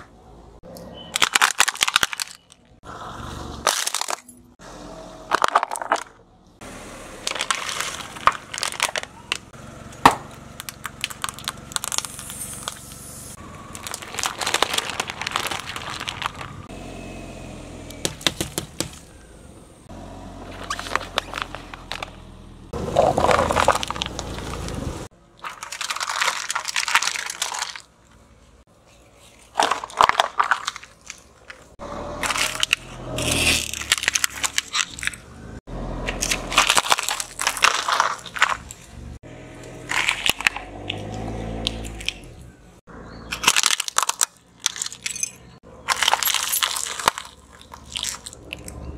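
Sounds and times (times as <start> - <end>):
tyre crushing plastic tubs: 1.1 - 2.7, 3.6 - 4.3, 5.3 - 6.2, 7.2 - 12.9, 13.6 - 16.7, 17.9 - 19.2, 20.4 - 22.2, 22.8 - 28.2, 29.1 - 35.3, 36.0 - 39.1, 39.7 - 42.2, 43.3 - 48.8.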